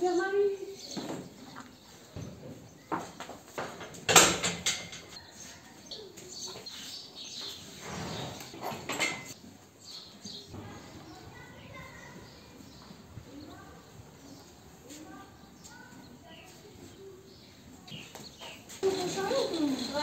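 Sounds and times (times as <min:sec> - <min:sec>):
knocks in a stable: 0:02.1 - 0:05.2.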